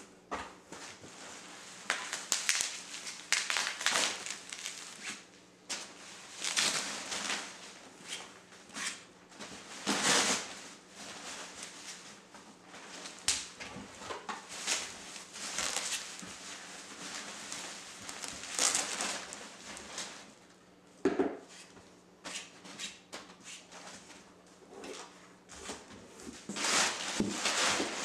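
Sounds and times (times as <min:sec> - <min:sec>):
bubble wrap crinkling: 0:01.2 - 0:08.2, 0:14.4 - 0:20.4, 0:26.4 - 0:28.0.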